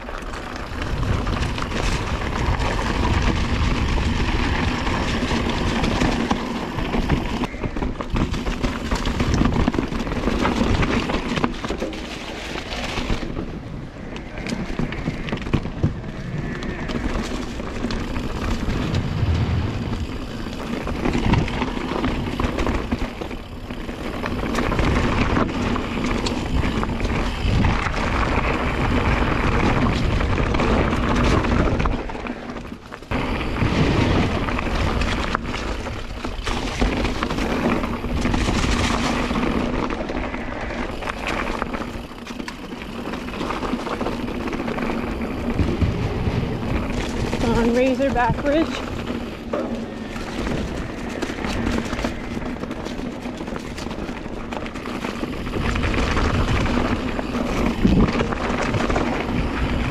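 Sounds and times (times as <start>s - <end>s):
bike tyres on dirt trail: 0.0s - 59.9s
wind rushing on microphone: 12.6s - 41.2s, 44.1s - 59.9s.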